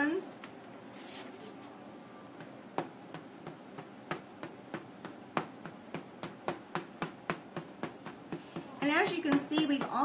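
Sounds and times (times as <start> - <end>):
paint applicator tapping board: 2.4 - 10.0.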